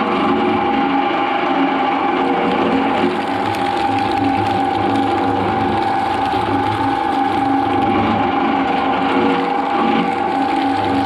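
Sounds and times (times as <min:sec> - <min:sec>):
shredder whining: 0:00.0 - 0:11.0.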